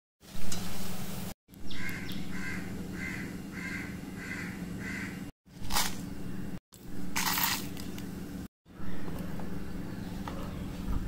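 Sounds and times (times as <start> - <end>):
bird calling: 1.6 - 5.2.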